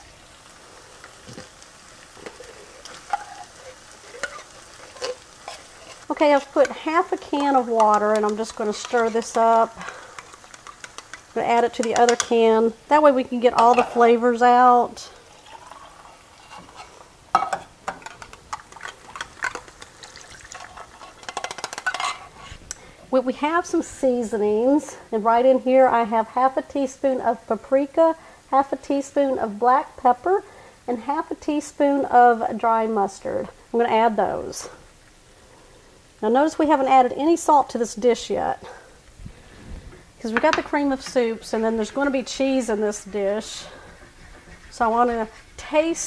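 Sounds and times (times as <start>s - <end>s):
onions sizzling in butter: 0.0s - 26.9s, 33.8s - 46.0s
spatula scraping a can: 2.2s - 11.3s, 18.1s - 22.6s, 41.0s - 46.0s
liquid pouring and splashing: 15.2s - 17.0s, 18.2s - 21.8s.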